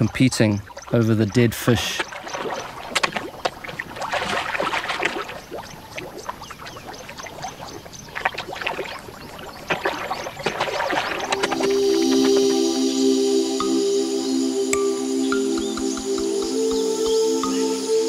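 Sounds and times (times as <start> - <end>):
fish thrashing in muddy water: 0.5 - 11.7
music: 11.2 - 18.0.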